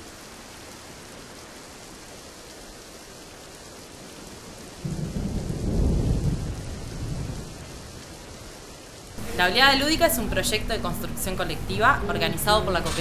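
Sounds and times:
rain hissing: 0:00.0 - 0:13.0
thunder rumbling: 0:04.5 - 0:13.0.

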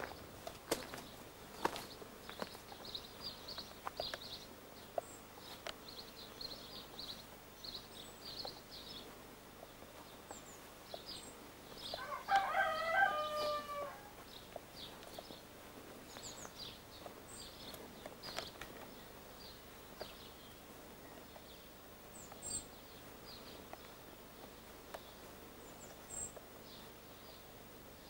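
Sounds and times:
small birds chirping: 0:00.0 - 0:28.0
rooster crowing: 0:11.9 - 0:14.2.

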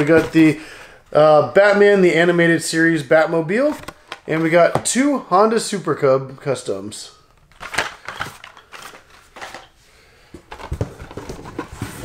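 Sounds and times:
plastic and card packaging rustling: 0:03.5 - 0:05.0, 0:07.3 - 0:12.0.

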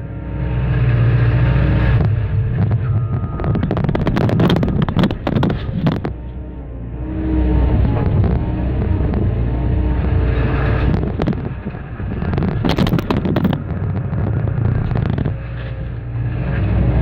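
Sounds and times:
excavator diesel engine running: 0:00.0 - 0:17.0
concrete cracking and crunching: 0:02.0 - 0:06.2, 0:10.5 - 0:16.0.

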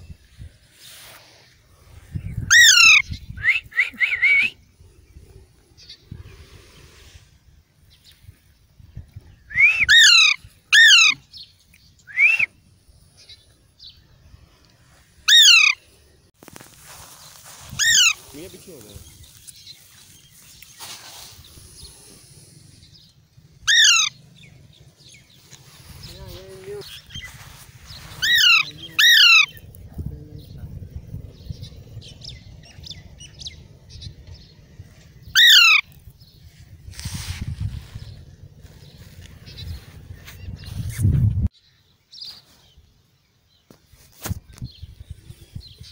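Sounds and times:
parakeet calling loudly: 0:02.5 - 0:03.1, 0:09.8 - 0:11.2, 0:15.3 - 0:15.8, 0:17.8 - 0:18.2, 0:23.6 - 0:24.2, 0:28.2 - 0:29.6, 0:35.3 - 0:35.9
steady low rumble: 0:21.4 - 0:41.5.

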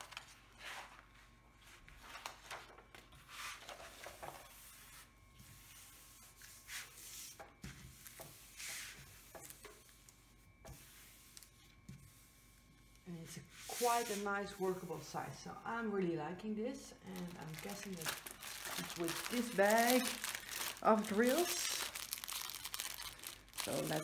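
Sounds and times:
hands rubbing plastic film: 0:17.2 - 0:24.0.

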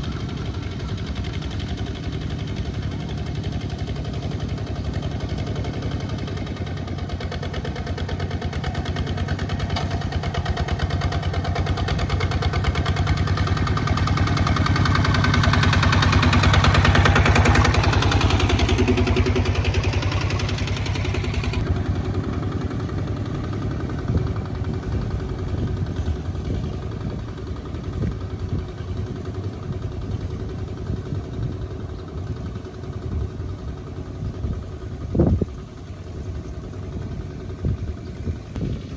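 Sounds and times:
small diesel engine chugging: 0:00.0 - 0:38.9.

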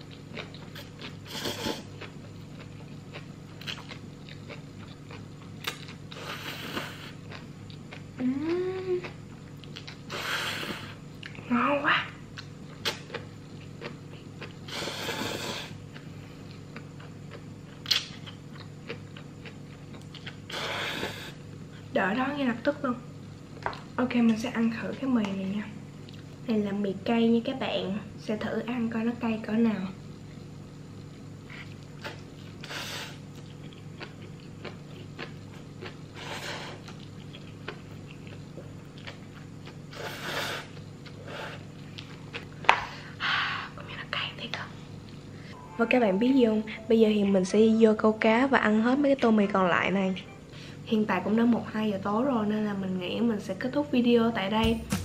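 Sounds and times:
chewing: 0:00.0 - 0:10.2, 0:12.3 - 0:20.7, 0:31.0 - 0:42.7
steady low hum: 0:00.0 - 0:55.0
person slurping noodles: 0:01.3 - 0:01.9, 0:06.2 - 0:07.2, 0:14.7 - 0:15.8.

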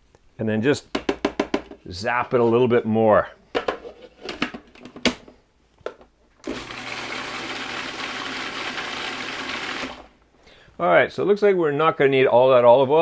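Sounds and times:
food processor motor humming: 0:06.4 - 0:10.1.

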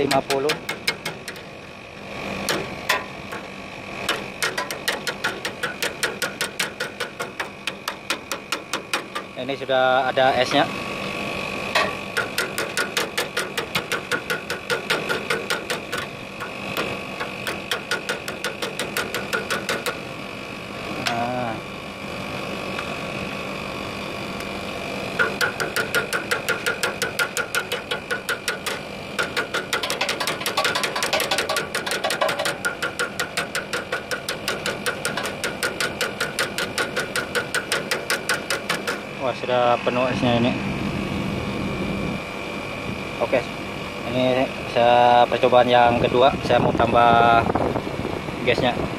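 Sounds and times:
air conditioner unit humming: 0:00.0 - 0:48.9
pliers tapping on metal pipes: 0:25.2 - 0:39.0.

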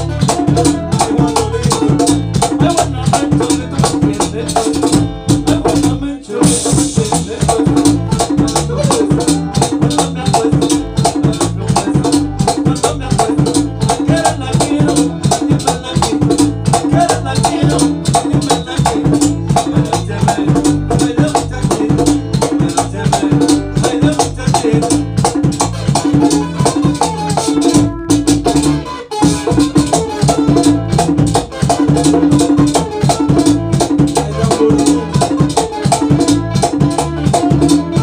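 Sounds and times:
man singing into microphone: 0:00.0 - 0:25.5, 0:33.7 - 0:38.0
electric bass: 0:00.0 - 0:38.0
latin percussion beat: 0:00.0 - 0:38.0
strummed acoustic guitars: 0:06.9 - 0:38.0.

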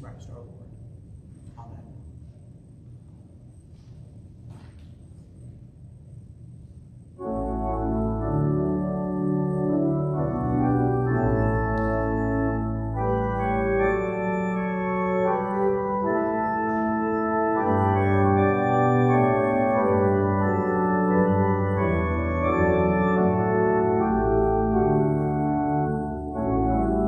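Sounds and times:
organ playing slow chords: 0:07.1 - 0:27.0.

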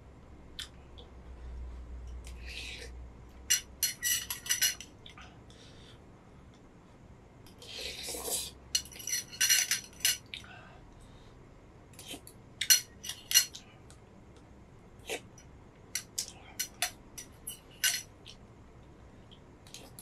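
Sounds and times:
metal spoon clinking on glass bowl: 0:16.0 - 0:18.1.

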